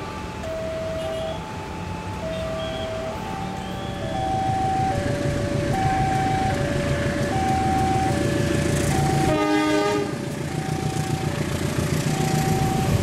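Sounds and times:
two-note crossing alarm chime: 0.0 - 5.1
locomotive rumble: 0.0 - 13.0
locomotive horn: 0.9 - 1.5, 2.1 - 13.0.

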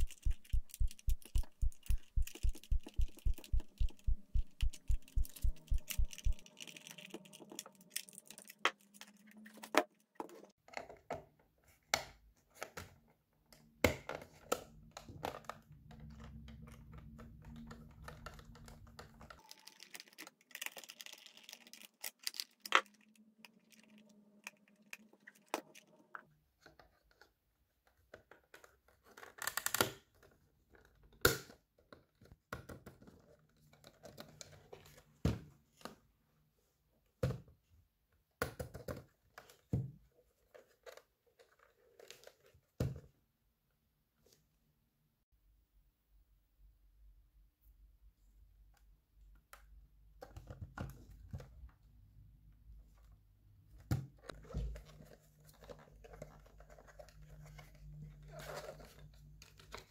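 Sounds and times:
low even thumping: 0.0 - 6.4.

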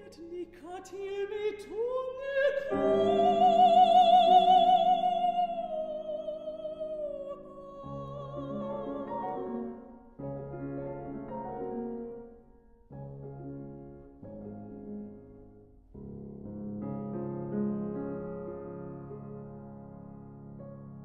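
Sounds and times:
woman singing with vibrato: 0.0 - 10.0
piano chords: 0.0 - 21.0.

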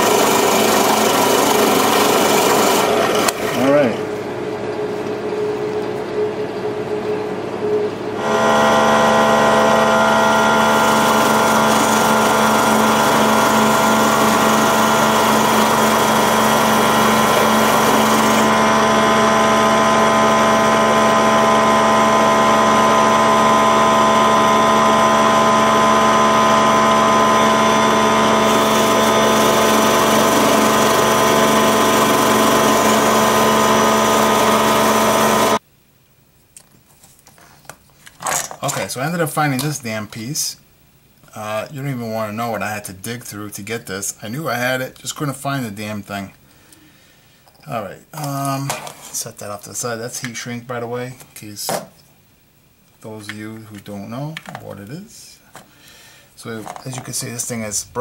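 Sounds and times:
power tool motor whining: 0.0 - 3.9, 8.2 - 35.6.

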